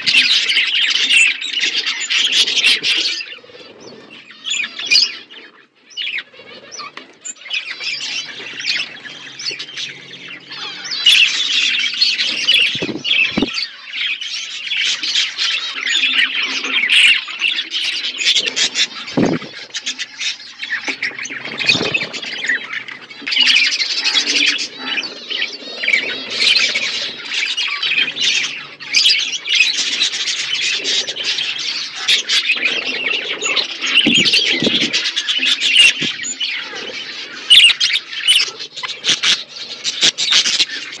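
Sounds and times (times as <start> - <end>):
budgerigars chattering: 0.0 - 41.0
low thumps: 19.2 - 19.5.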